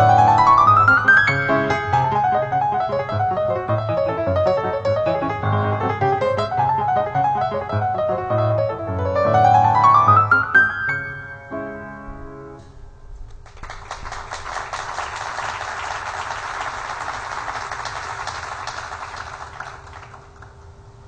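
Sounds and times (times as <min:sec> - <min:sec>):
grand piano notes: 0:00.0 - 0:13.3
audience applauding: 0:13.3 - 0:20.7.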